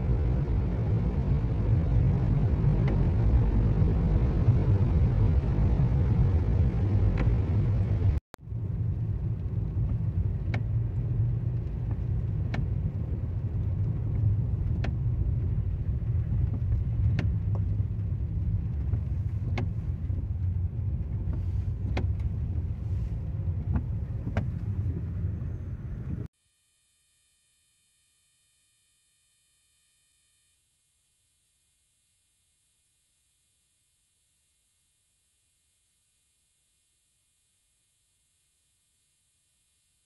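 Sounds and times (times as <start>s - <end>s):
car cabin rumble: 0.0s - 26.3s.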